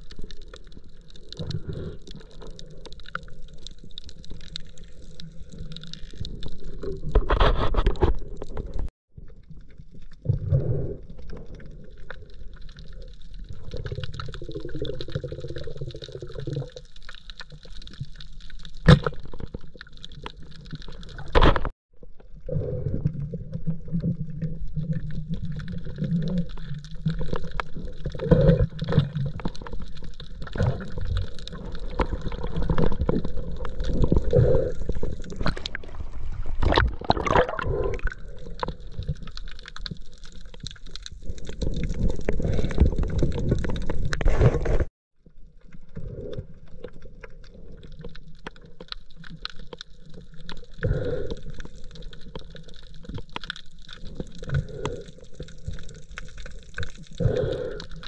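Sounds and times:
underwater water sloshing: 18.7 - 44.9
water splashing: 23.0 - 44.5.

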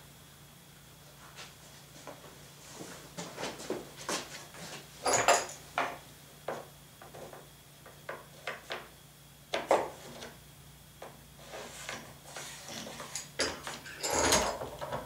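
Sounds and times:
tools knocking and clattering: 5.0 - 8.2, 12.7 - 15.0.

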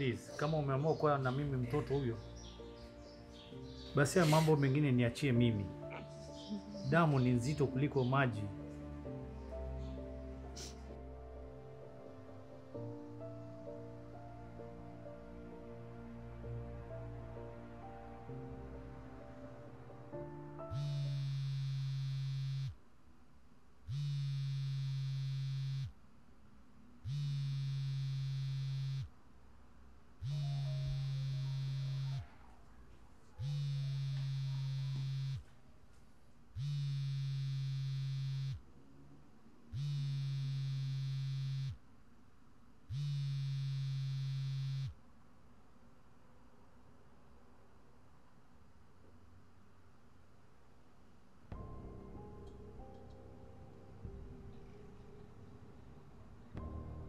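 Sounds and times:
smartphone vibrating: 20.7 - 22.8, 23.9 - 26.0, 27.0 - 29.1, 30.2 - 32.3, 33.4 - 35.5, 36.6 - 38.6, 39.7 - 41.8, 42.9 - 45.0.

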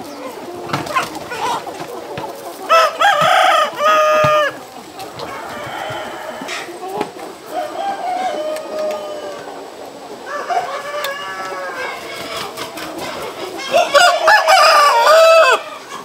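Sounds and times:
chickens clucking: 0.0 - 16.0
rooster crowing: 2.7 - 4.6, 5.2 - 6.7, 7.5 - 9.6, 10.2 - 12.1, 13.7 - 15.8.

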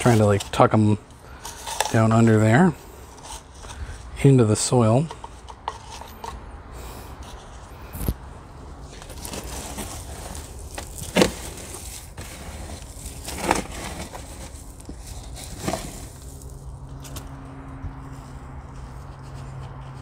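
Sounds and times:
scoop crunching into gritty soil: 0.0 - 5.9, 8.8 - 17.3.

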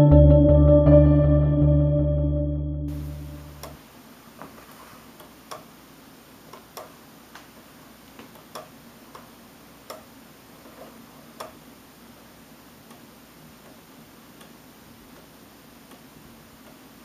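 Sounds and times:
faint stepper motor clicks: 5.1 - 5.7, 6.5 - 17.0.

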